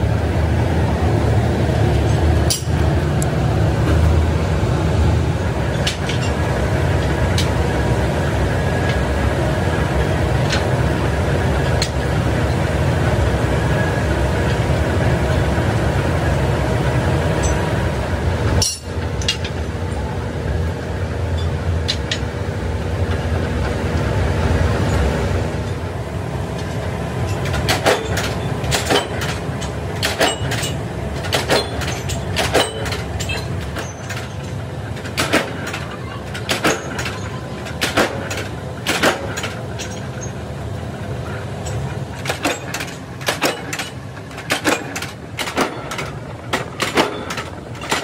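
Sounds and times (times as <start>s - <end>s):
workshop machinery drone: 0.0s - 48.0s
metal springs clinking together: 2.0s - 2.8s, 18.6s - 19.7s, 26.6s - 40.4s, 41.2s - 48.0s.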